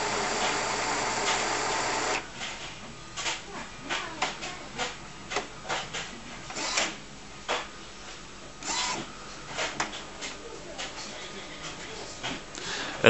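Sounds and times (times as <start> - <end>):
printer carriage shuttling: 0.0 - 2.2
small motors whirring: 0.0 - 2.2, 8.6 - 9.0.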